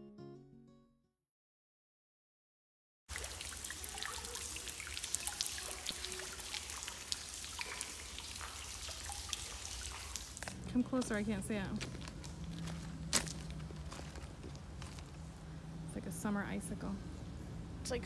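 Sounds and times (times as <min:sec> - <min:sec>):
stream trickling over gravel: 0:03.1 - 0:15.5.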